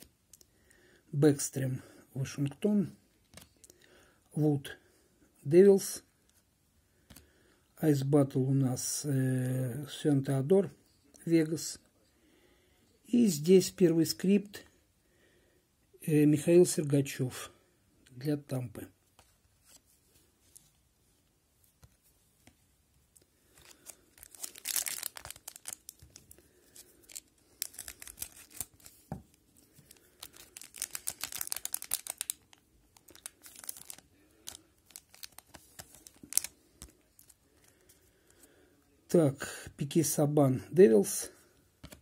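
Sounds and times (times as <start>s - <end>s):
cards rustling and clicking: 21.6s - 38.5s, 41.8s - 42.0s
plastic wrapper crinkling and tearing: 23.5s - 38.4s.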